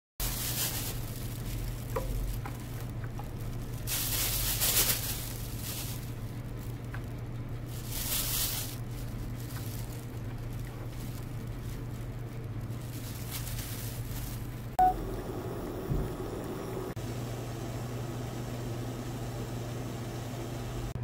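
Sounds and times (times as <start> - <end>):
herb sprigs rustling: 0.2 - 14.8
steady low hum: 0.2 - 21.0.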